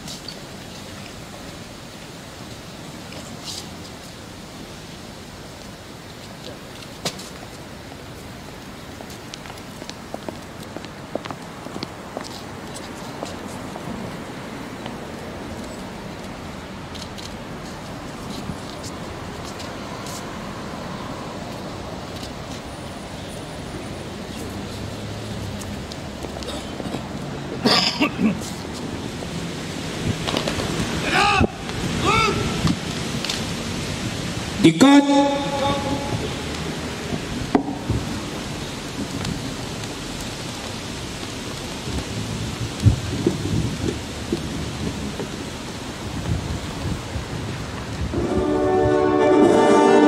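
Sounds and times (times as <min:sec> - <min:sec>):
road traffic hum: 0:00.0 - 0:50.0
wind buffeting microphone: 0:28.6 - 0:34.6, 0:35.8 - 0:49.7.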